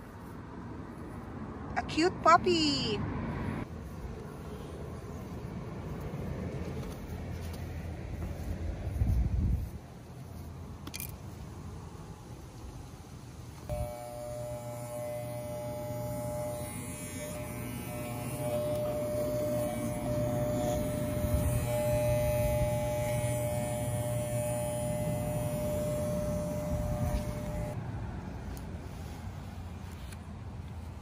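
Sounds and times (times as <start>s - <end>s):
electric dog clippers buzzing: 13.6s - 27.8s.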